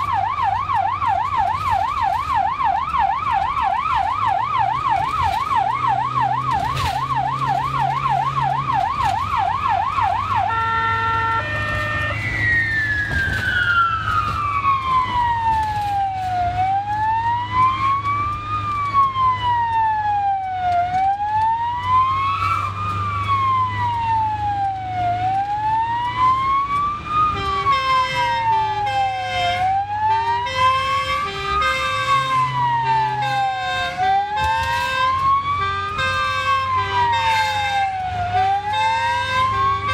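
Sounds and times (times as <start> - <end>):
ambulance siren: 0.0 - 39.9.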